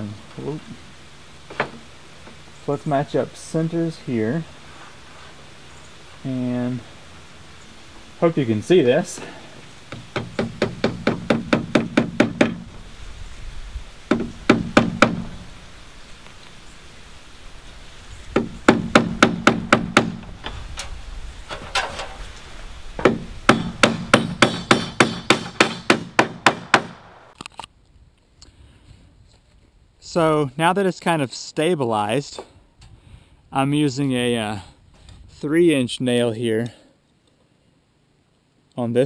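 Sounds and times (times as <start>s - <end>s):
hammer driving nails into wood: 9.9s - 12.7s, 14.1s - 15.3s, 18.4s - 20.3s, 23.0s - 27.2s.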